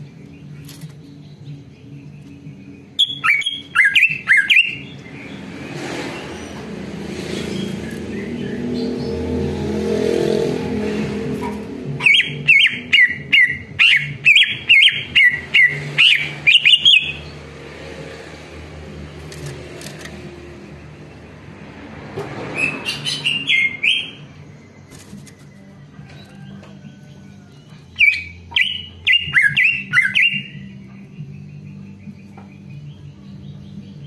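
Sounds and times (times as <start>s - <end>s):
bird rapid sharp chirping: 0.1s - 9.3s, 11.4s - 20.0s, 22.5s - 25.6s, 27.8s - 34.0s.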